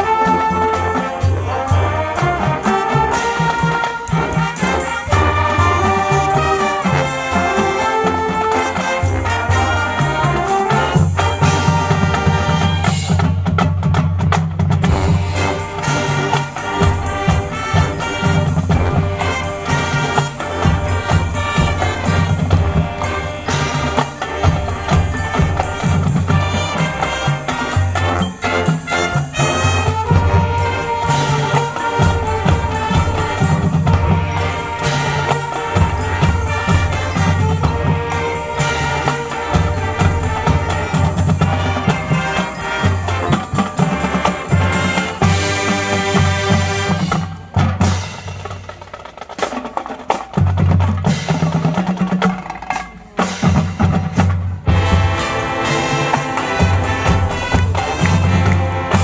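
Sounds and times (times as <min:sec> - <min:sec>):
brass playing held notes: 0:00.0 - 0:13.4, 0:14.8 - 0:48.2, 0:54.6 - 0:59.0
drums and percussion: 0:00.0 - 0:59.0.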